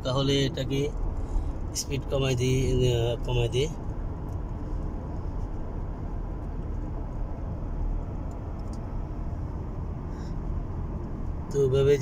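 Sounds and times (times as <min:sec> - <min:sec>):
tyre and road noise: 0:00.0 - 0:12.0.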